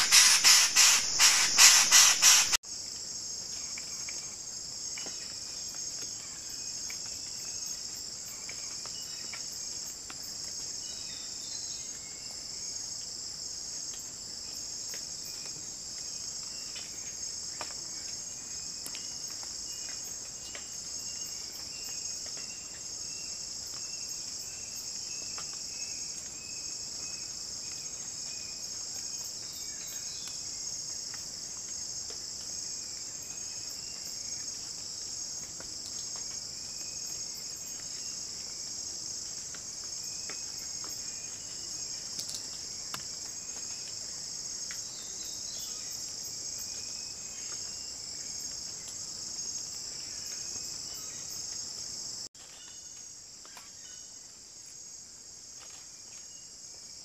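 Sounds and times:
insects trilling: 0.0s - 2.8s.

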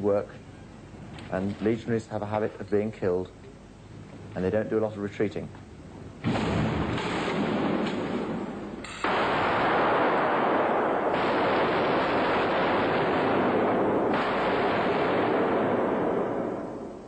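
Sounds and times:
heavy continuous gunfire: 6.2s - 17.0s.

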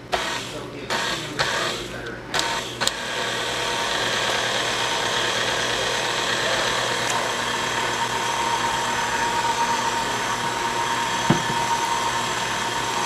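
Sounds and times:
stand mixer whining: 0.0s - 13.0s
brief knock: 11.3s - 11.6s.

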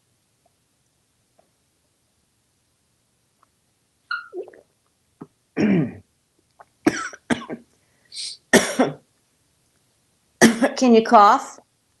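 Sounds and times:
person clearing throat: 5.6s - 6.0s, 6.9s - 7.6s, 8.5s - 9.0s, 10.4s - 10.8s
person coughing: 5.6s - 6.0s, 6.9s - 7.6s, 8.6s - 9.0s, 10.4s - 10.8s.

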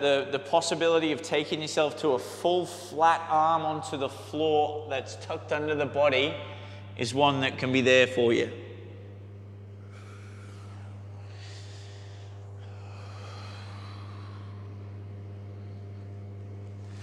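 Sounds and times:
low background hum: 0.0s - 17.0s
soft breathy exhalations: 9.8s - 17.0s.

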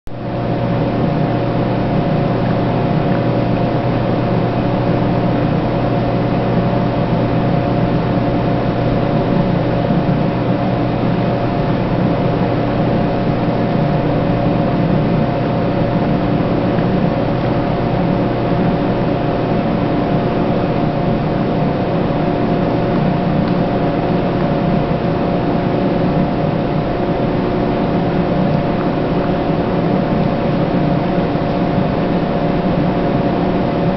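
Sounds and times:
machine hum with hiss: 0.1s - 33.9s.

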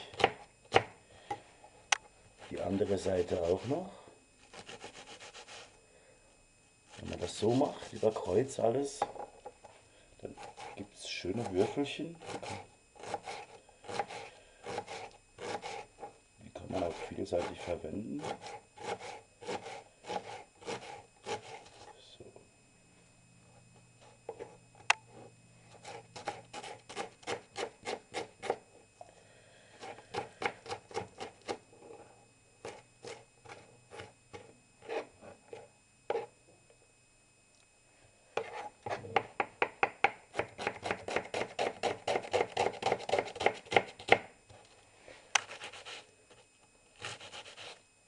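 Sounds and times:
knife chopping on cutting board: 0.1s - 0.9s, 38.4s - 44.3s.

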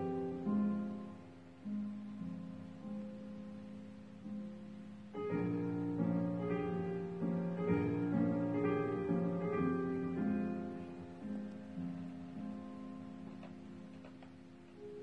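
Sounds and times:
slow keyboard chords: 0.0s - 15.0s.

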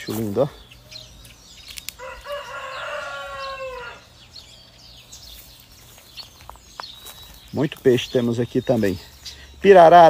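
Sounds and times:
rooster crowing: 2.0s - 4.2s.

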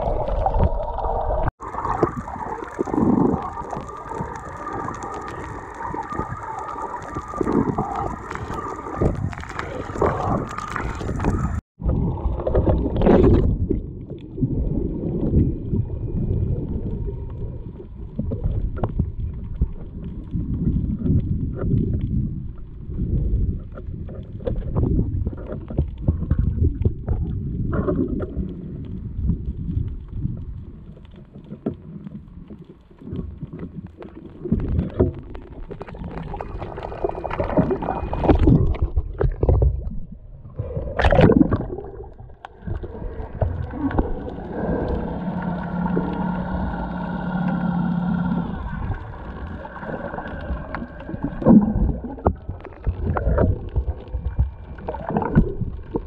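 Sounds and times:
water sloshing underwater: 0.0s - 56.0s
steady hum with whine: 43.7s - 51.5s.

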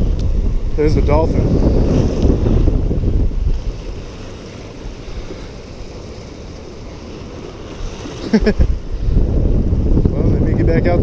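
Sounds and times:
waves washing against rocks: 0.0s - 11.0s
wind buffeting microphone: 0.0s - 11.0s.

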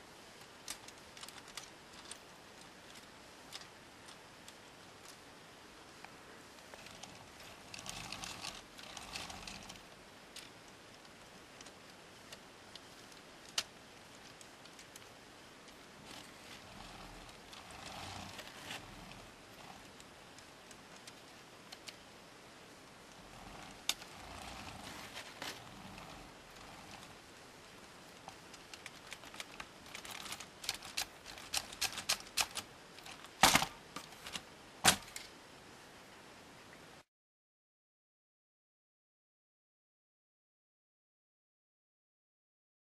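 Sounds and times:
plastic gears clicking and rattling: 0.4s - 5.3s, 6.6s - 22.1s, 23.1s - 27.2s, 27.9s - 35.3s.

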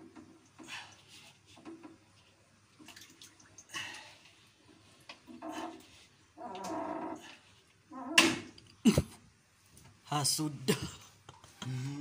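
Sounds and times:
water splashing in tank: 1.9s - 5.8s.

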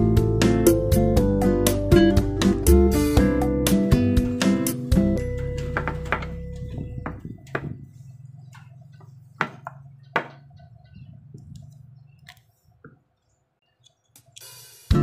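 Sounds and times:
short burst of hiss: 14.4s - 15.0s.

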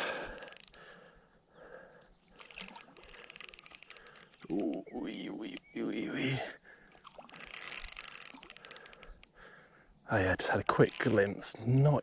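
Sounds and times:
fishing reel drag clicking: 0.3s - 0.8s, 2.4s - 4.8s, 7.2s - 9.4s, 10.6s - 11.4s.

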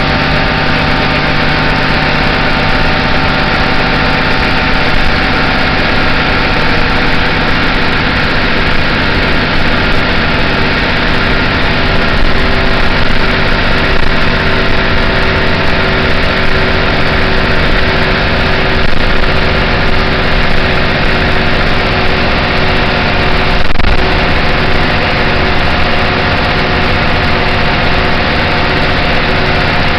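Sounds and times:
bus engine droning: 0.0s - 29.9s.

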